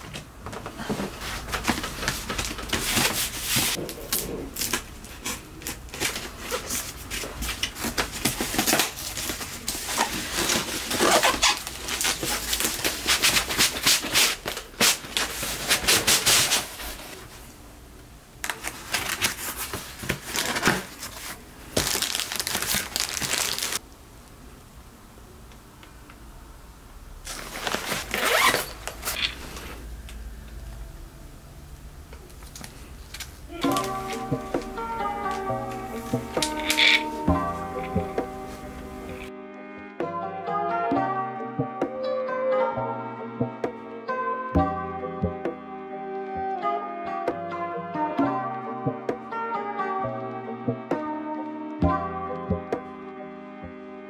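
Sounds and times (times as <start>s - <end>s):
cardboard box rustling and scraping: 6.0s - 17.3s.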